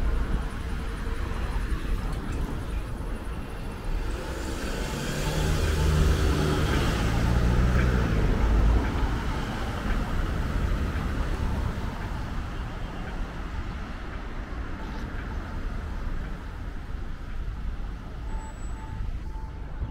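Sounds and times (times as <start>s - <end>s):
cars driving past: 0.0s - 19.9s.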